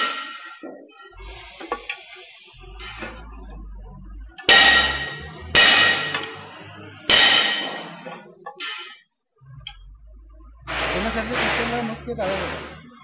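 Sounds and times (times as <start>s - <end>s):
hard metal strikes ringing: 4.4s - 9.0s, 10.7s - 13.0s.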